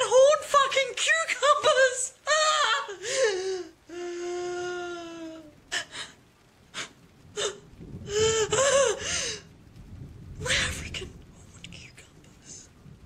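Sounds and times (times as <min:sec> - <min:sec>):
woman wailing and sobbing: 0:01.4 - 0:06.1, 0:06.8 - 0:09.5.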